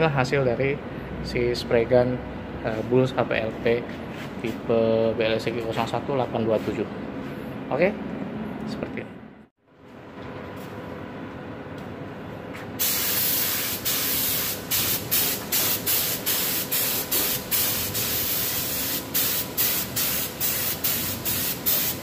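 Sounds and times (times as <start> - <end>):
spray gun hissing: 12.8 - 22.0.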